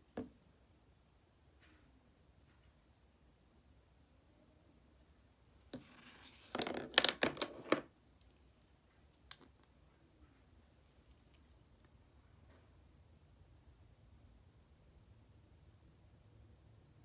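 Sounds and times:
plastic containers clicking and rattling: 0:06.5 - 0:07.8.

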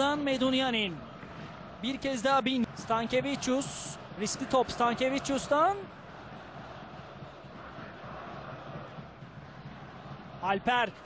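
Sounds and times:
stadium crowd noise: 0:00.0 - 0:11.0.

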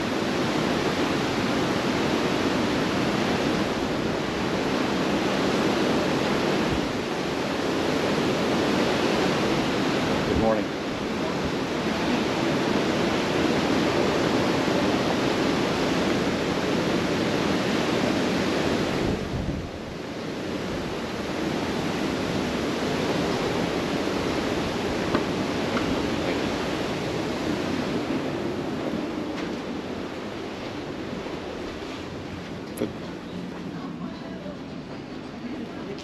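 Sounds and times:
sea rushing past ship: 0:00.0 - 0:36.0
wind buffeting microphone: 0:00.0 - 0:36.0.

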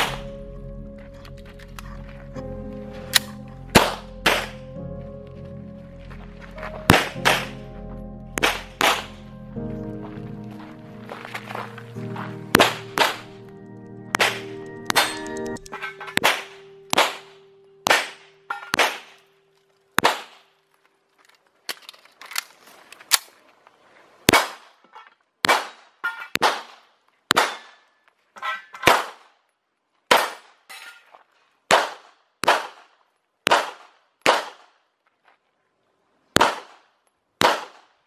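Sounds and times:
handgun shots with echo: 0:03.1 - 0:04.6, 0:06.9 - 0:07.6, 0:08.4 - 0:09.2, 0:12.6 - 0:13.3, 0:14.2 - 0:19.2.

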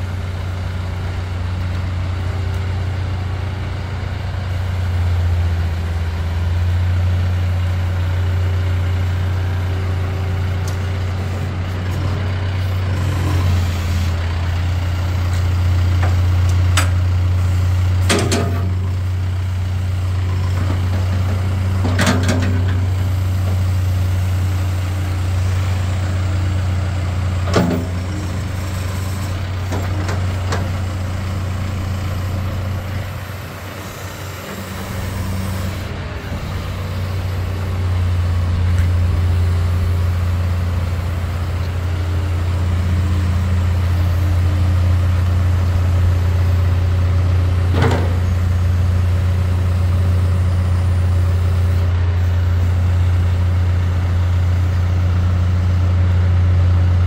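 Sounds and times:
diesel engine running: 0:00.0 - 0:57.0
sharp metal clunks: 0:18.1 - 0:18.8.

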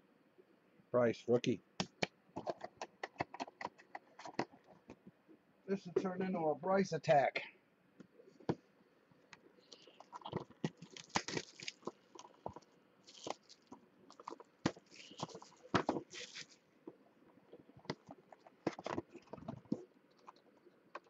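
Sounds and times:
cellophane wrap tearing and crumpling: 0:10.7 - 0:12.3, 0:13.0 - 0:16.6.

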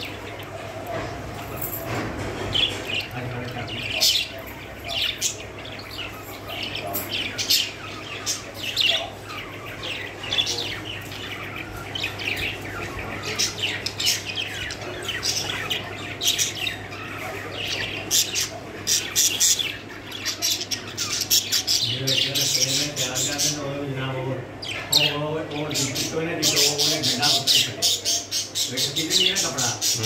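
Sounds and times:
budgerigars chirping and squawking: 0:00.0 - 0:30.0.

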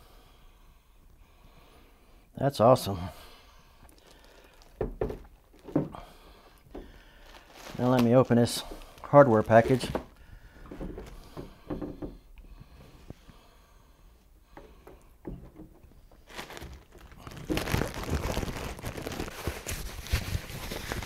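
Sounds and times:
plastic packaging crinkling: 0:03.8 - 0:05.9, 0:06.5 - 0:11.2, 0:15.8 - 0:21.0.

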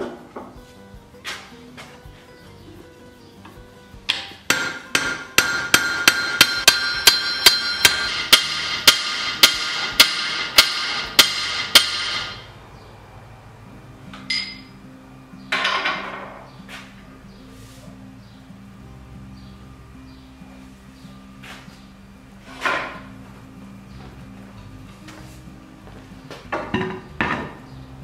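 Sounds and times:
hammer striking metal hub: 0:04.1 - 0:12.5, 0:14.1 - 0:14.8
metal clink: 0:14.3 - 0:14.7.

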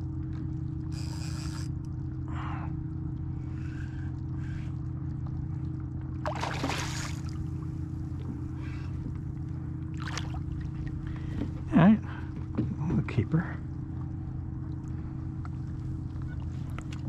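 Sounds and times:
motor humming: 0:00.0 - 0:12.7.

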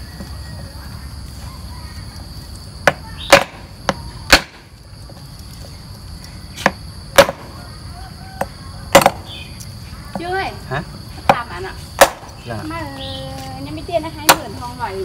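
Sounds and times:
cleaver chopping bone on wood block: 0:02.8 - 0:04.6, 0:06.6 - 0:07.4, 0:08.9 - 0:09.2, 0:12.0 - 0:12.3.

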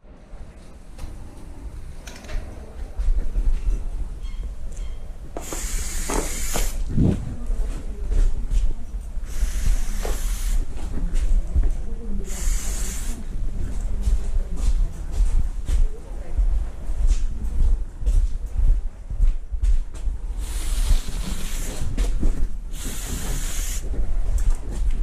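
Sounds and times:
spray paint can hissing: 0:05.4 - 0:06.8, 0:09.2 - 0:10.7, 0:12.2 - 0:13.2, 0:20.4 - 0:22.0, 0:22.7 - 0:23.8
steady low rumble: 0:06.8 - 0:09.6, 0:13.2 - 0:22.8.

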